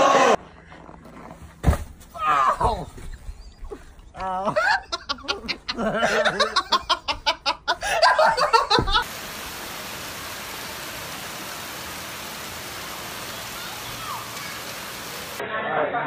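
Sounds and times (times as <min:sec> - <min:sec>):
person laughing hard: 0:04.3 - 0:09.0
steady hiss: 0:08.0 - 0:15.4.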